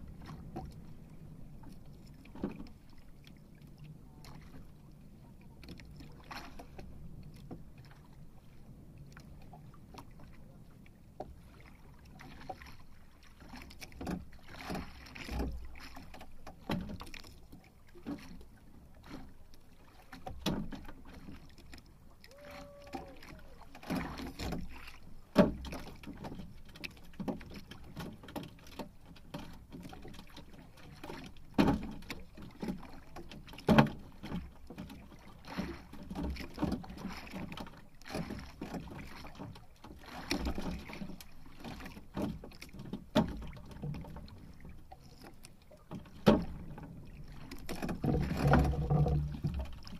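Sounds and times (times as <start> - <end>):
knocks and thumps on boat: 0.0 - 4.7, 11.2 - 49.9
water lapping against boat hull: 0.0 - 49.9.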